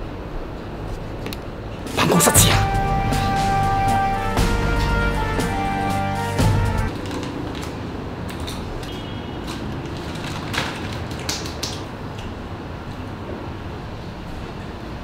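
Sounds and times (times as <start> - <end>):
music: 1.9 - 7.0.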